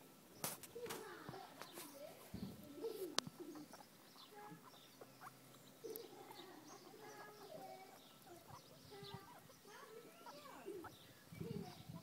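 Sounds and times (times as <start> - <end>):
guinea pigs squeaking: 0.4 - 12.0.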